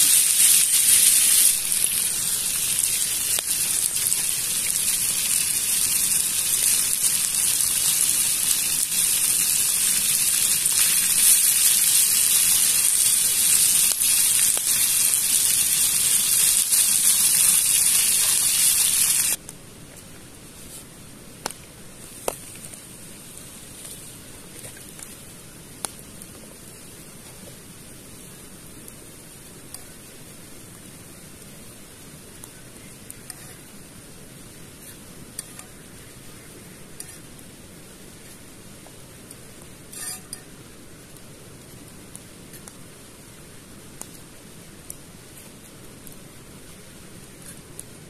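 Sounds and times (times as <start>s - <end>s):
fish sizzling in frying pan: 0.0s - 19.4s, 39.8s - 40.5s.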